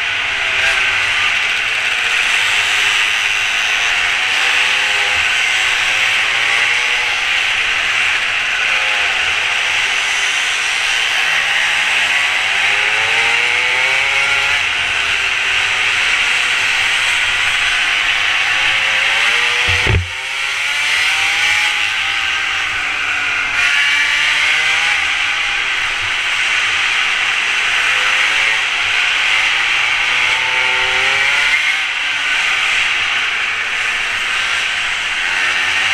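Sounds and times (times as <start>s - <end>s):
small motorbike engine revving: 0.0s - 35.9s
sharp knock: 19.7s - 20.2s.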